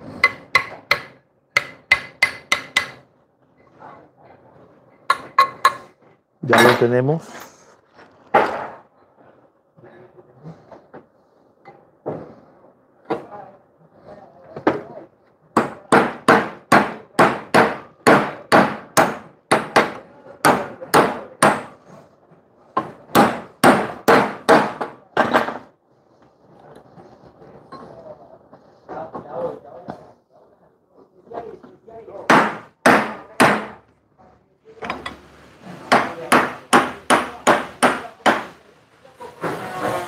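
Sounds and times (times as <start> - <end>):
hammer striking metal: 0.1 - 3.0.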